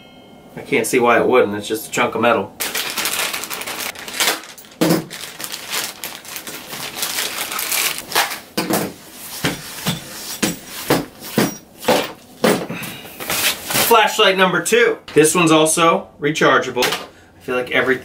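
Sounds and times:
plastic bag crinkling: 0:02.6 - 0:08.6.

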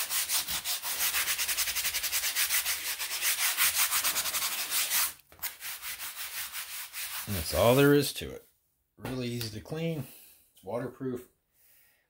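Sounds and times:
sponge scrubbing rubber mat: 0:00.0 - 0:07.8.

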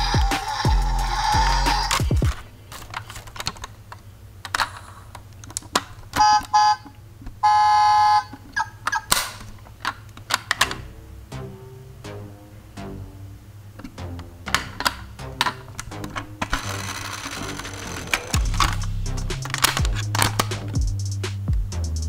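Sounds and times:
toy tune: 0:00.0 - 0:02.1, 0:06.2 - 0:06.8, 0:07.4 - 0:09.1, 0:16.5 - 0:18.6
plastic toy doors clicking: 0:00.5 - 0:03.8, 0:04.5 - 0:06.7, 0:08.3 - 0:10.8, 0:14.6 - 0:18.8, 0:19.4 - 0:20.7
electronic toy beeps: 0:06.2 - 0:06.8.

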